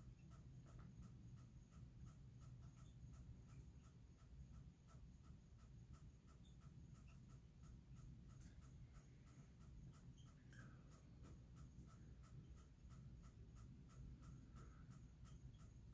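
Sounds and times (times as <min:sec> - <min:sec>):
low steady hum: 0:00.0 - 0:15.9
soft repeating chirp: 0:06.2 - 0:15.9.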